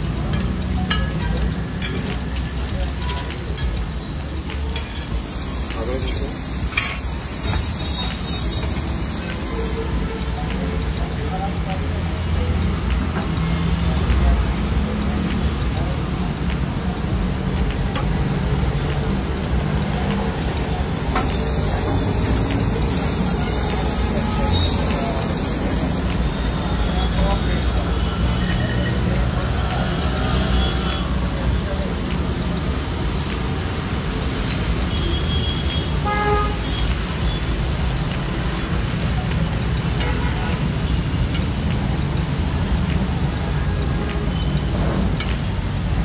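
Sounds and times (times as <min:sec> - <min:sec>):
eggs sizzling on griddle: 0:00.0 - 0:46.0
street traffic: 0:00.0 - 0:46.0
vehicle horn toot: 0:34.9 - 0:36.8.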